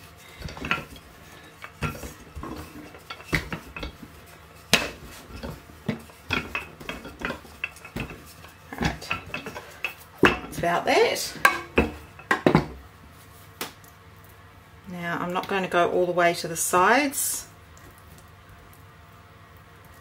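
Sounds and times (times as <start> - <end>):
rolling pin rolling dough: 0.0 - 12.8.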